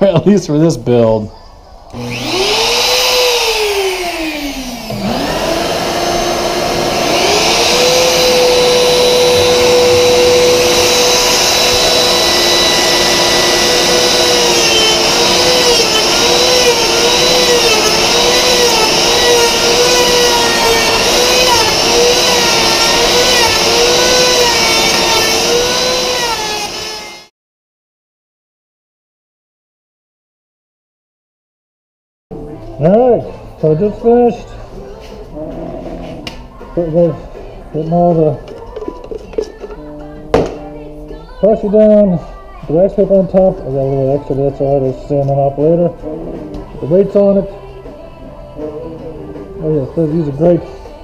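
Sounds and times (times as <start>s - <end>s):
router cutting wood: 1.9s - 27.3s
shop vacuum running: 1.9s - 27.3s.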